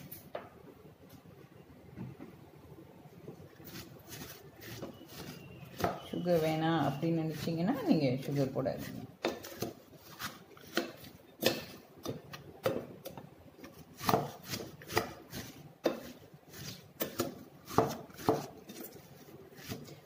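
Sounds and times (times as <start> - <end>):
wooden spatula scraping glass bowl: 3.6 - 11.0
cabbage rustling: 3.6 - 11.2, 14.0 - 20.0.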